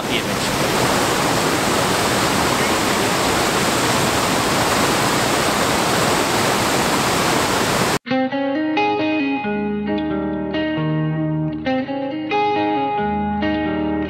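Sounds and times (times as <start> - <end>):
waterfall rushing over rocks: 0.0 - 8.0
plucked guitar music: 8.0 - 14.0.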